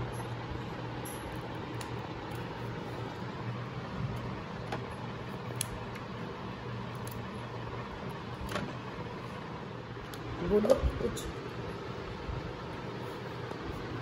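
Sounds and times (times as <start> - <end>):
low room hum: 0.0 - 14.0
chillies snapping by hand: 5.5 - 6.1, 6.9 - 7.3.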